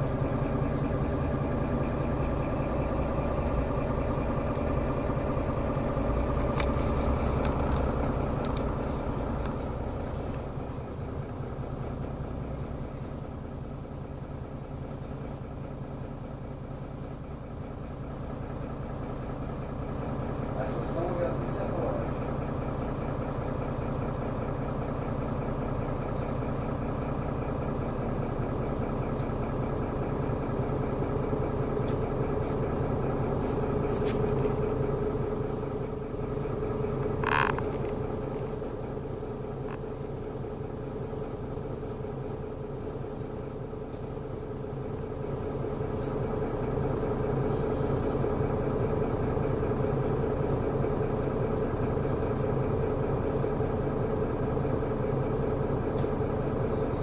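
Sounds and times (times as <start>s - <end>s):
bus engine humming: 0.0s - 57.0s.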